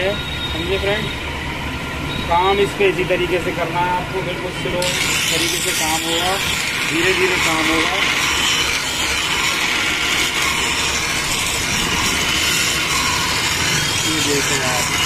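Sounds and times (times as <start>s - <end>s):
blade grinding on grinding wheel: 4.2s - 15.0s.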